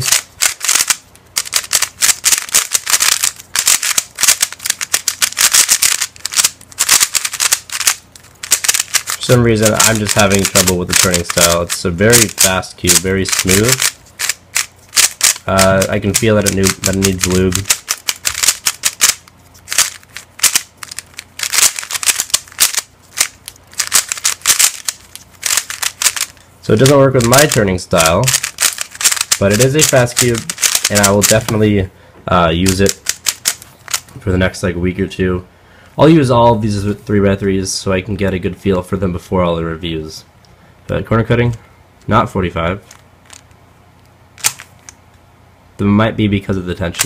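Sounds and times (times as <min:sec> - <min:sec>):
plastic puzzle cube clicking: 0:00.0 - 0:09.2, 0:09.8 - 0:26.4, 0:28.2 - 0:31.5, 0:32.7 - 0:34.0, 0:44.4 - 0:44.9.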